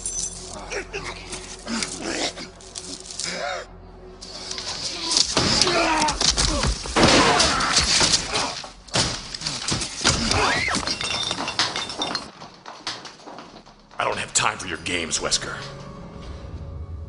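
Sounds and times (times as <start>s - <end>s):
glass shattering: 0.0s - 0.7s, 5.0s - 13.0s
glass knocks and clatter: 9.7s - 13.7s.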